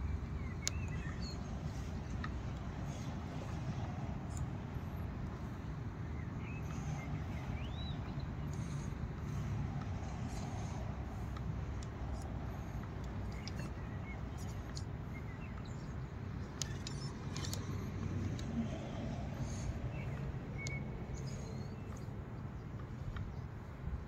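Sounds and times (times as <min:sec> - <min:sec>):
low outdoor rumble: 0:00.0 - 0:24.0
bird chirps: 0:00.4 - 0:01.9, 0:06.1 - 0:09.5, 0:13.2 - 0:23.5.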